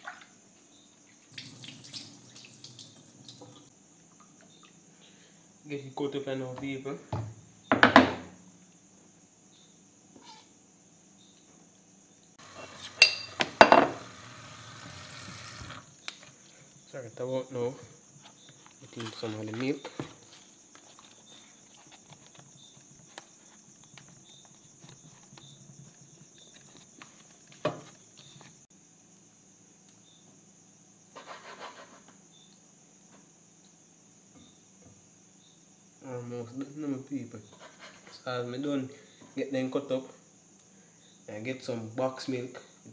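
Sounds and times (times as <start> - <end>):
knife scraping on board: 10.2 - 10.5, 12.4 - 14.2, 31.2 - 32.1, 37.5 - 38.2
dishes clinking: 12.5 - 14.0
faint handling sounds: 17.6 - 28.7.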